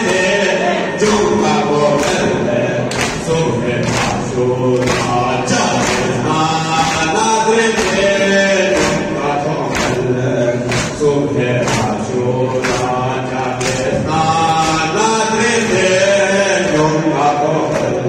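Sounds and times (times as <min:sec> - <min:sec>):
group chanting in unison: 0:00.0 - 0:18.0
sharp percussive beat: 0:00.0 - 0:18.0.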